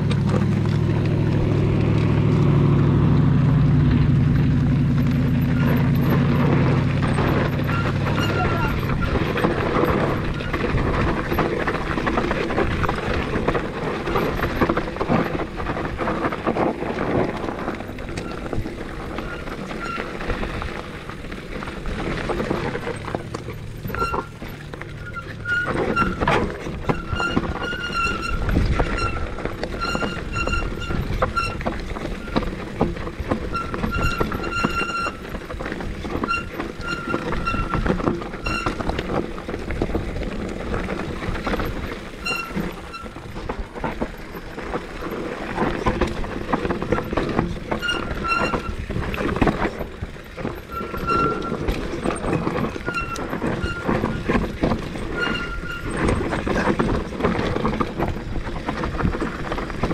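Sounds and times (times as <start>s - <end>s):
bike rattling over rocks: 0.0s - 59.9s
disc brakes squealing: 4.9s - 15.8s, 17.0s - 39.6s, 40.4s - 57.3s.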